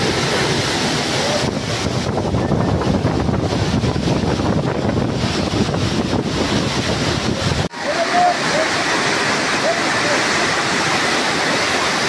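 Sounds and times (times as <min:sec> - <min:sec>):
wind buffeting microphone: 0:00.0 - 0:07.7
waterfall rushing: 0:00.0 - 0:12.0.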